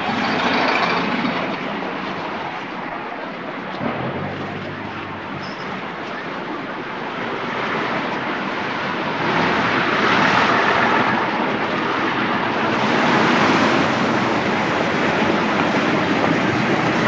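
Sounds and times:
traffic rushing: 3.7 - 16.7.

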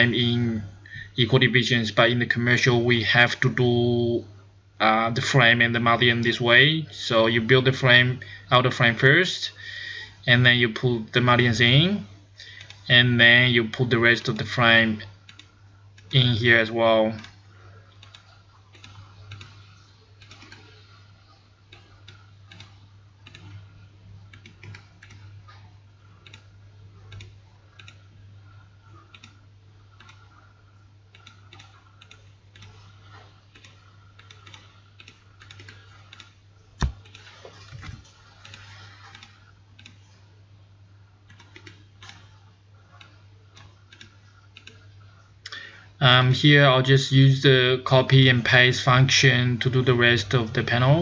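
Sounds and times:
keyboard and mouse clicking: 18.0 - 21.1, 21.7 - 23.7, 24.3 - 25.4, 26.1 - 30.4, 31.1 - 40.2, 41.2 - 44.9.

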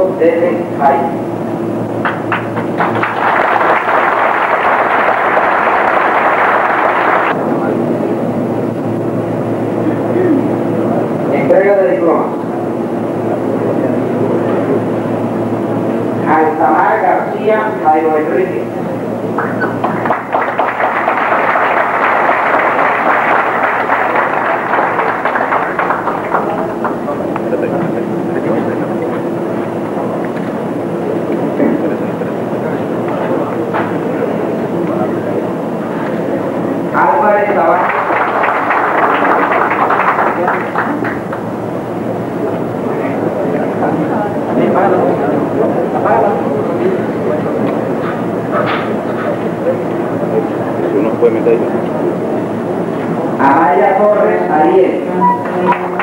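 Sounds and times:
audience applauding: 2.0 - 7.4, 19.4 - 27.7, 37.2 - 41.5, 55.7 - 56.0.

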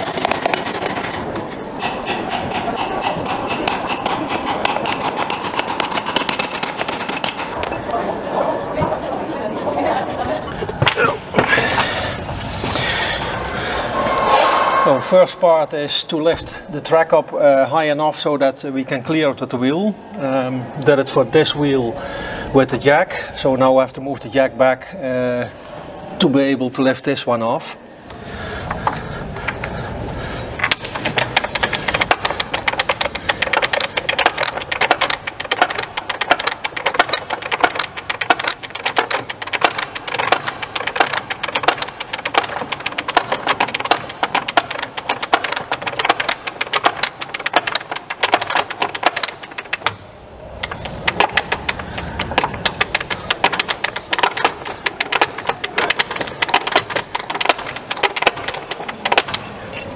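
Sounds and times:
ratchet wrench clicking: 1.8 - 7.8, 30.6 - 50.0, 50.6 - 59.9.

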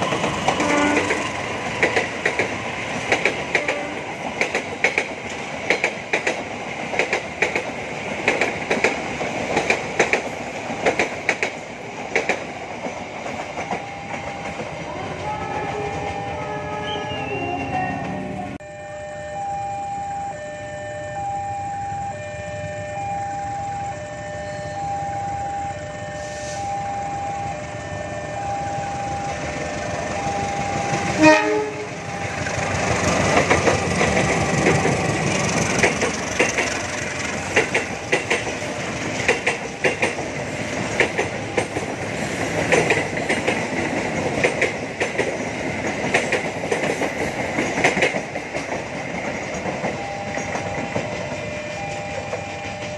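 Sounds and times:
train wheels clacking: 0.0 - 16.3, 29.6 - 52.9
train passing rumble: 0.0 - 18.6, 22.3 - 52.9
train horn blast: 0.6 - 1.3, 3.5 - 4.2, 31.0 - 32.3
level crossing alarm: 13.4 - 32.8, 49.6 - 52.9.

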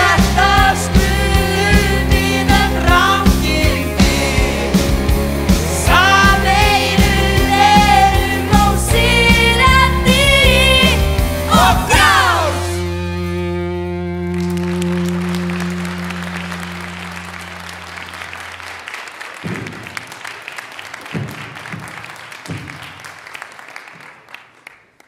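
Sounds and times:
held final music chord: 11.6 - 18.7
audience applauding: 14.1 - 25.0.

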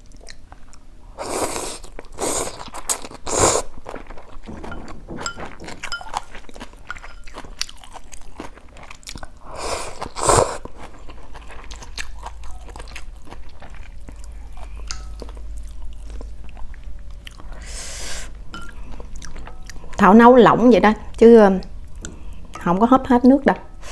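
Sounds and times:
noodle slurp: 9.6 - 10.7.

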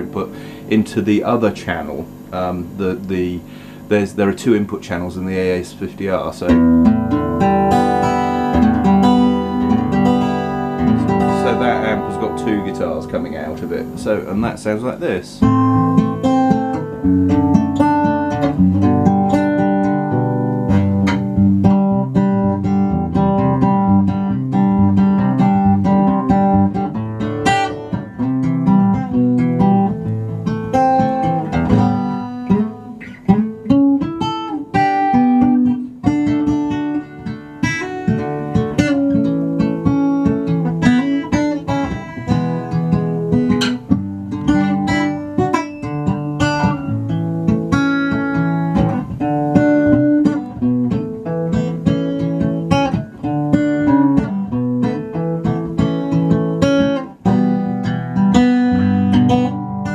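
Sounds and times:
acoustic guitar picking: 0.0 - 59.9.

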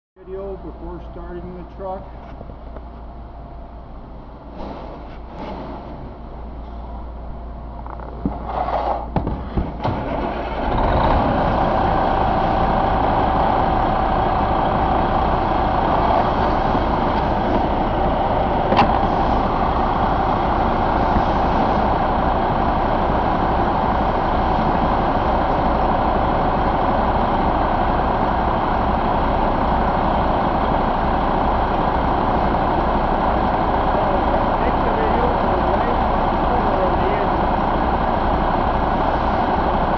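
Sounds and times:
diesel engine cranking and idling: 0.2 - 39.9
thin steady whine: 11.8 - 39.9.

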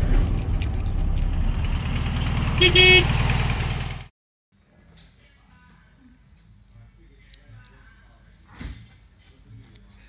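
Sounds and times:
car horn toot: 2.5 - 3.2.

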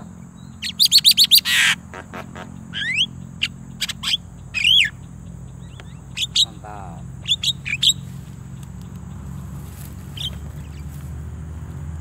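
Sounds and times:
mynas chirping: 0.0 - 12.0
whistled bird notes: 7.2 - 8.2.

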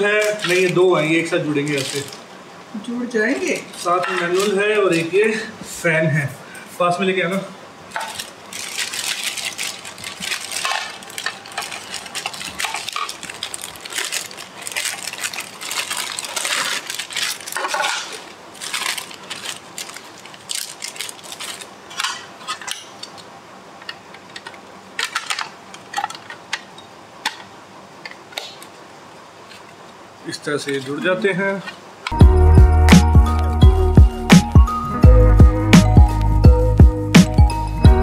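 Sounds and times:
plastic bags crinkling: 0.0 - 2.3, 3.2 - 5.5, 7.9 - 26.7
hard plastic parts clicking: 21.4 - 28.7.

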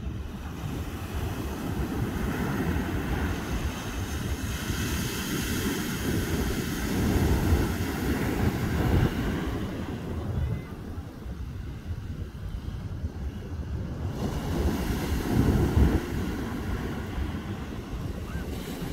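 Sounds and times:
ocean surf breaking on sand: 0.0 - 18.9
wind buffeting the microphone: 0.0 - 18.9.

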